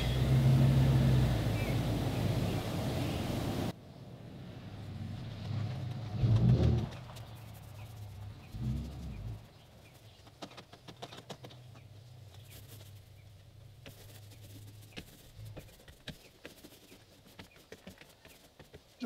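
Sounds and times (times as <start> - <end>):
paintbrush taps and scrapes: 13.8 - 19.0.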